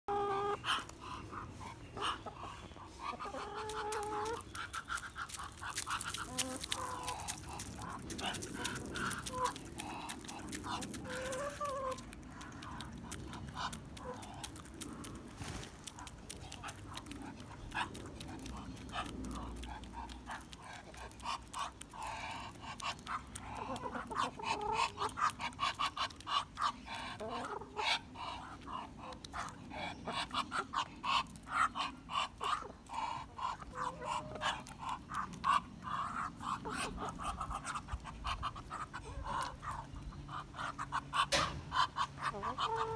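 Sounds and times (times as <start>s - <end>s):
hens clucking softly: 0.1s - 42.9s
hens pecking beak taps: 3.0s - 42.9s.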